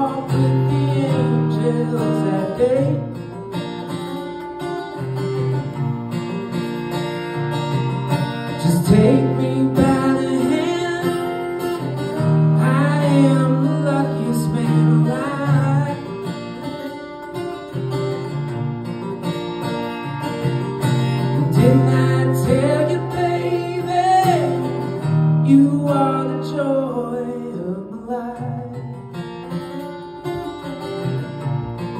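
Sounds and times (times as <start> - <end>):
man singing: 0.0 - 3.5, 8.5 - 16.3, 21.3 - 29.0
acoustic guitar: 0.0 - 31.9.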